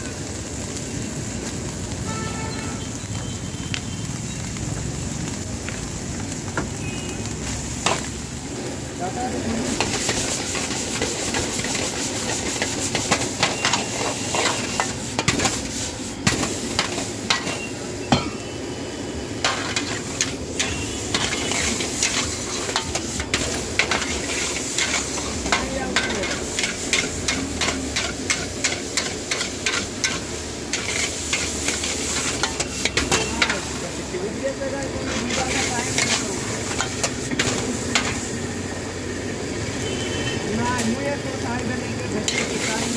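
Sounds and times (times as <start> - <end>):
rice sizzling: 0.0 - 42.9
metal spatula scraping wok: 9.6 - 18.4, 19.4 - 34.1, 34.9 - 38.4, 42.2 - 42.9.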